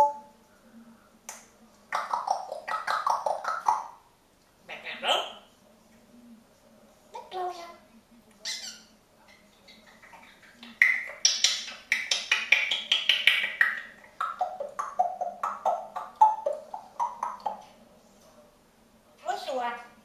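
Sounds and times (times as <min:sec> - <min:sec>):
parrot clicks and calls: 0:10.1 - 0:17.6.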